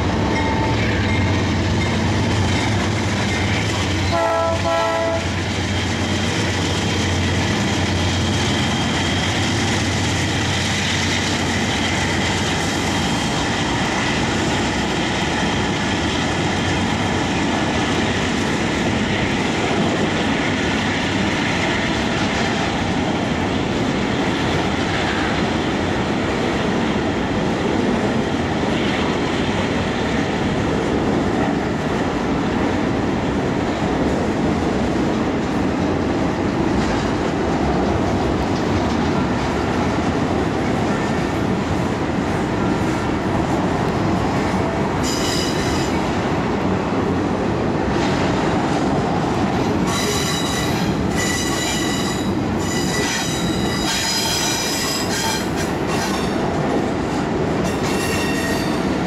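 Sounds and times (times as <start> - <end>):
freight train rumbling past: 0.0 - 59.0
high-pitched wheel squeal: 49.9 - 55.5.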